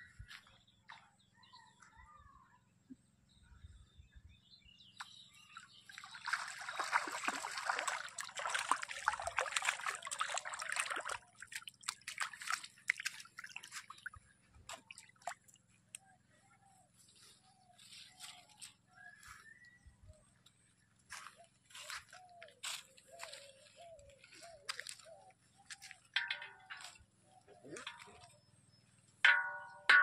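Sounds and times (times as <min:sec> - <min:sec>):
fish splashing in shallow water: 0:05.8 - 0:15.8.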